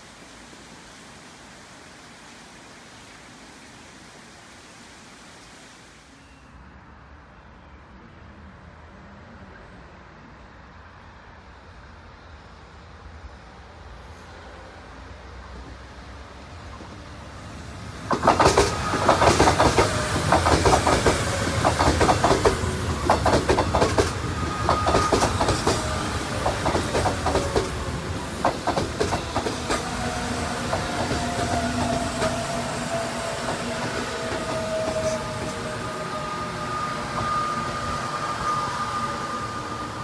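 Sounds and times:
train wheels clattering over rail joints: 0:18.1 - 0:32.6.

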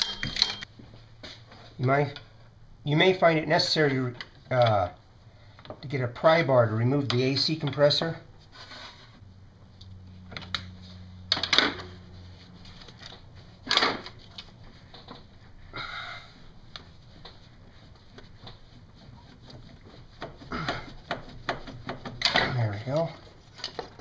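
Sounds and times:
metal scrape: 0:08.4 - 0:09.2.

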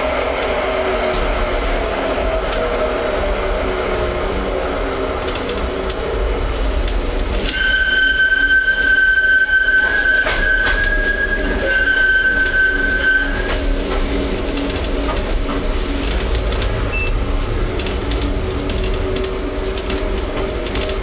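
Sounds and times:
tram rumbling: 0:00.0 - 0:21.0
tram wheels squealing: 0:00.0 - 0:21.0
wheels clicking over rail joints: 0:05.2 - 0:21.0.

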